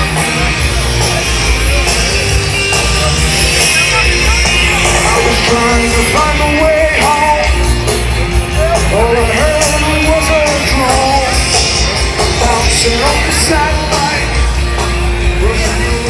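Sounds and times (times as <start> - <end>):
rock band playing live: 0.0 - 16.0
person singing: 4.7 - 7.8, 8.5 - 16.0.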